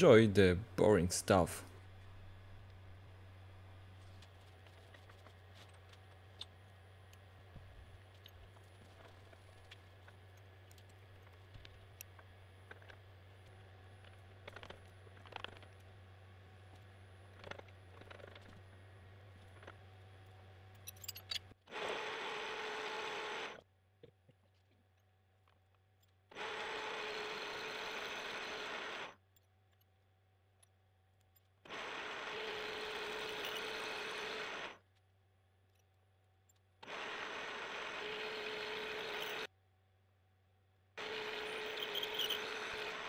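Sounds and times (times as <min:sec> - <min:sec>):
low machine hum: 0:00.0 - 0:21.3
mill cutting steel: 0:31.7 - 0:34.8, 0:36.8 - 0:39.5, 0:41.0 - 0:43.0.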